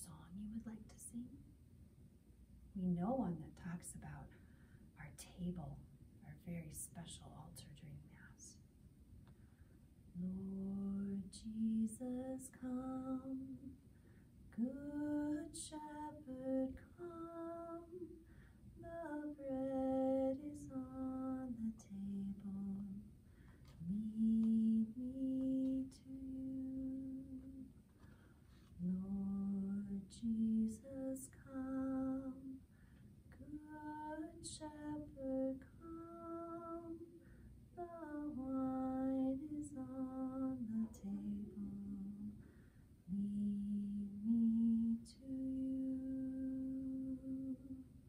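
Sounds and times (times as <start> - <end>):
woman singing a hymn: 10.2 - 13.7, 14.5 - 18.2, 18.8 - 23.1, 23.8 - 27.7, 28.8 - 32.6, 33.3 - 37.1, 37.7 - 42.4, 43.1 - 47.8.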